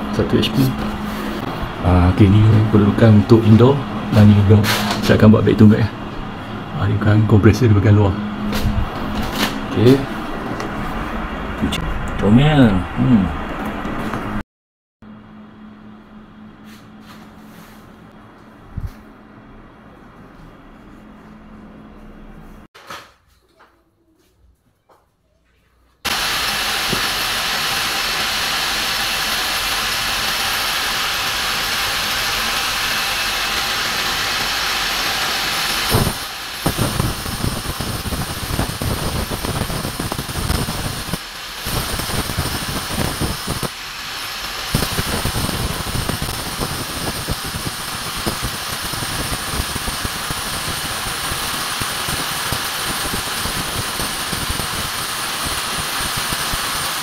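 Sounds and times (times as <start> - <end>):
drill boring into masonry: 26.1 - 57.0.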